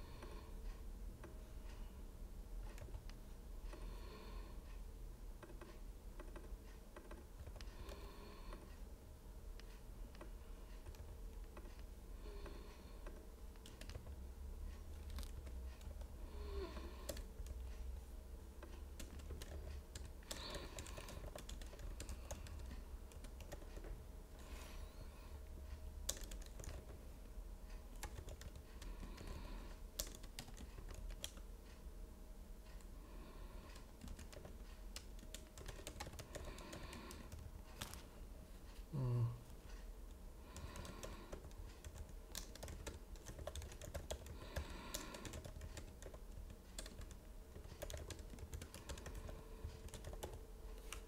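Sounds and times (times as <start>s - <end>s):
low steady hum: 0.0s - 51.0s
computer keyboard typing: 2.7s - 3.2s, 5.4s - 8.7s, 10.2s - 11.9s, 13.0s - 17.7s, 18.6s - 24.0s, 26.0s - 27.1s, 27.9s - 31.5s, 33.7s - 38.0s, 40.5s - 51.0s.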